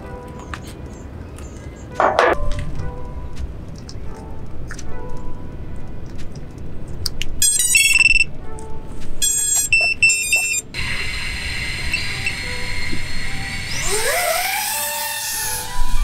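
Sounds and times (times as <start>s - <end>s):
drone motor startup beeps: 7.4s - 8.3s, 9.2s - 14.7s
drone motors idle whine: 9.3s - 16.0s.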